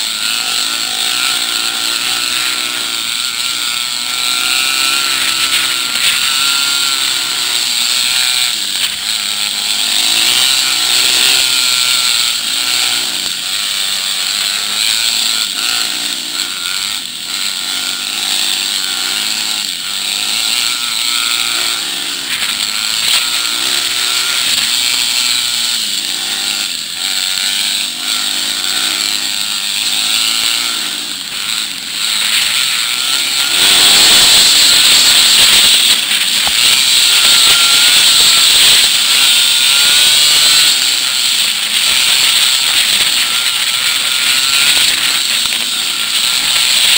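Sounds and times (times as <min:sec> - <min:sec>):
dirt bike engines revving: 0:00.0 - 0:46.9.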